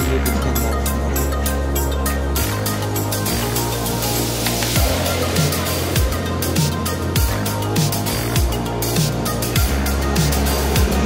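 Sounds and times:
background music with beat: 0.0s - 11.0s
deep sustained bass: 0.0s - 11.0s.

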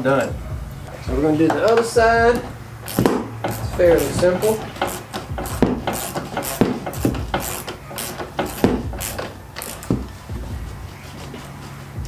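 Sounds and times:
socket ratchet clicking: 1.5s - 10.1s.

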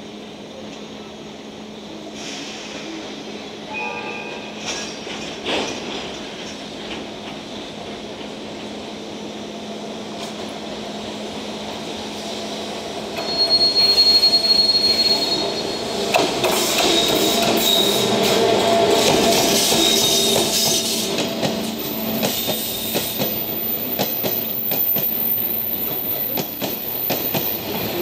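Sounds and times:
electric locomotive passing: 2.7s - 28.0s
wheel squeal: 13.2s - 18.4s, 19.0s - 21.0s, 22.6s - 28.0s.

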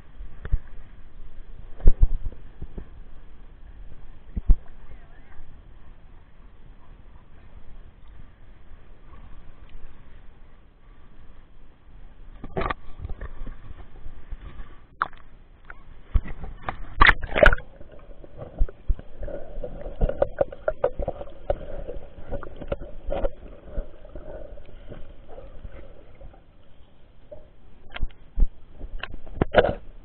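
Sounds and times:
faint steady drone: 0.0s - 30.0s
water sloshing and splashing: 12.3s - 30.0s
sharp splashes and knocks: 16.1s - 24.2s.

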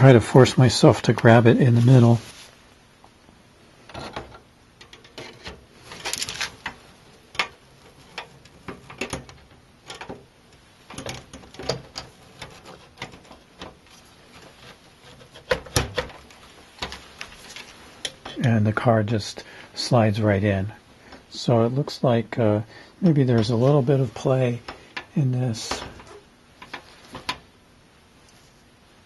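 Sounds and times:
clicks and scrapes of metal and plastic: 3.9s - 18.3s, 24.6s - 27.4s.

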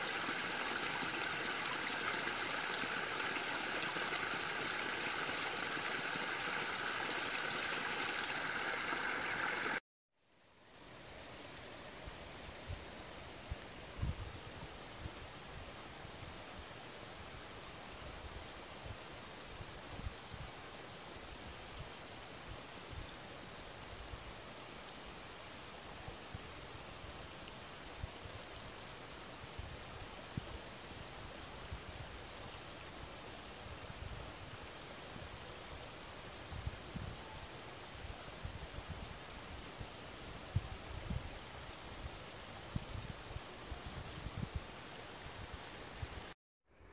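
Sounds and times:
water trickling over rocks: 0.0s - 9.8s.

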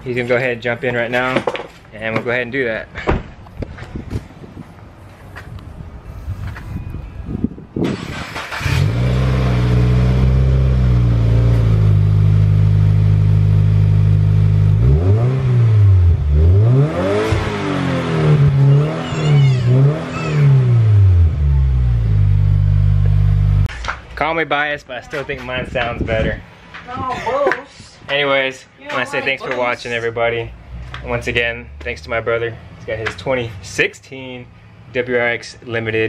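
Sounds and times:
car engine revving: 7.9s - 23.7s
car engine idling: 8.1s - 15.0s, 18.4s - 23.7s.

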